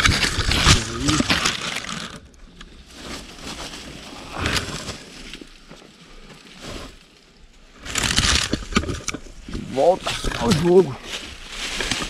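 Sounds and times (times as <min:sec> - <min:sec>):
footsteps through dry leaves: 0:02.8 - 0:05.6, 0:09.8 - 0:12.0.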